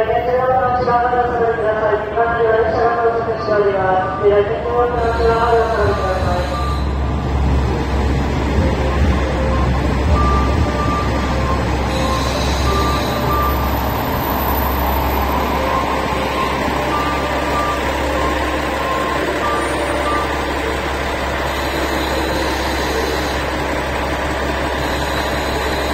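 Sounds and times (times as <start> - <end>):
diesel railcar engine idling: 0.0 - 25.9
electronic beeps: 8.6 - 20.8, 21.4 - 23.5, 24.7 - 25.9.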